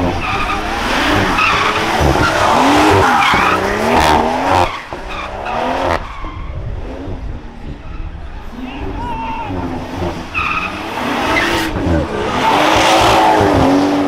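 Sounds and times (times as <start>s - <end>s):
car engine revving hard: 0.0s - 6.1s, 9.5s - 14.0s
tyres squealing: 0.0s - 6.5s.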